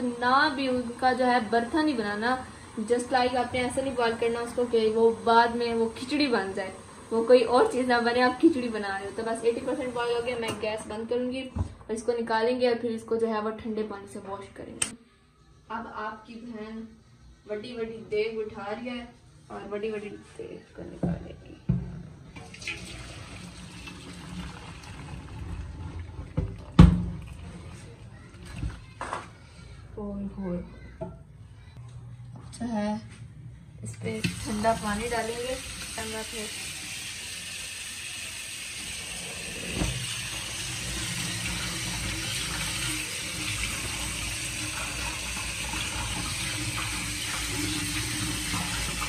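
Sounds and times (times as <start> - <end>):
tap water running into colander: 0.0 - 11.0, 22.4 - 28.8, 34.0 - 49.0
water pouring through metal colander: 22.4 - 28.0.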